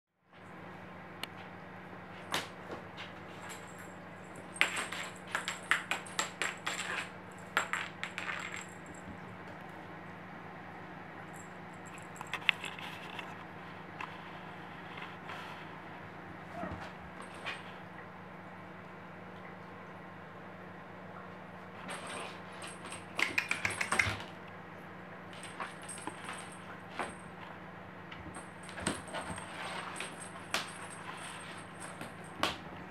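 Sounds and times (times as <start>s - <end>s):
cat paws tapping and scuffing: 21.9s - 24.4s, 25.4s - 32.7s
kitten paws tapping on floor: 22.6s - 24.3s.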